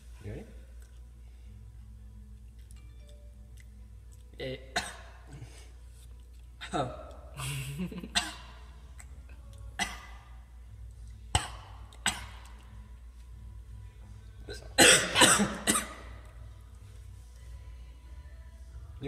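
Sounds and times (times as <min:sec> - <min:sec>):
person clearing throat: 0:04.6 - 0:05.5, 0:08.0 - 0:08.6, 0:09.8 - 0:10.2, 0:11.4 - 0:12.5, 0:14.8 - 0:16.2
person coughing: 0:04.8 - 0:05.6, 0:08.0 - 0:08.5, 0:14.8 - 0:16.1.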